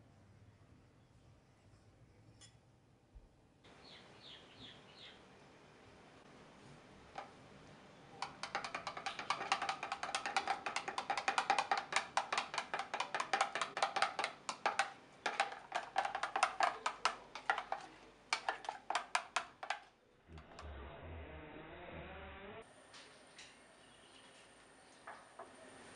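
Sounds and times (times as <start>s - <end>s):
spoon clicking against plastic jug: 8.2s - 19.9s.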